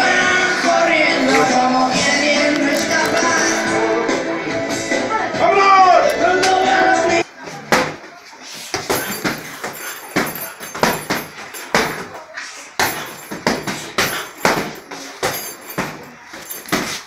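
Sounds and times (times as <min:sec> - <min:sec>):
boxing gloves hitting: 0:08.7 - 0:12.2, 0:12.8 - 0:17.0.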